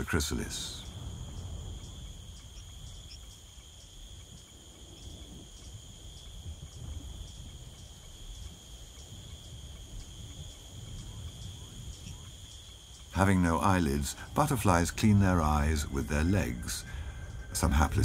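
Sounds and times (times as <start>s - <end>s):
insect chirps: 0.0s - 18.0s
insect shrill drone: 0.0s - 18.0s
low rumble: 13.2s - 18.0s.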